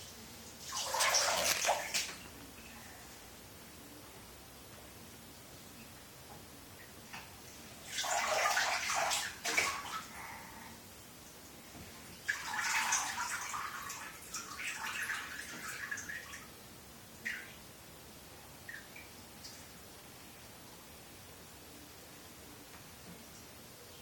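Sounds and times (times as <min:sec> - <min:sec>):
bath water splashing: 0:00.6 - 0:02.3, 0:07.8 - 0:10.1, 0:12.2 - 0:16.3.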